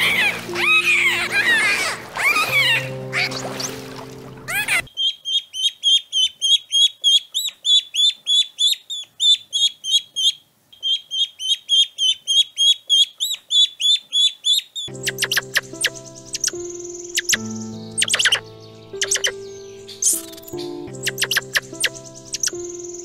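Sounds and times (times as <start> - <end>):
chicks peeping: 14.9 - 23.0.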